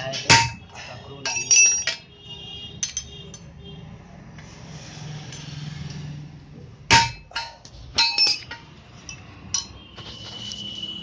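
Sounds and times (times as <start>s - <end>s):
hammer striking steel on anvil: 0.0s - 2.1s, 6.9s - 8.6s.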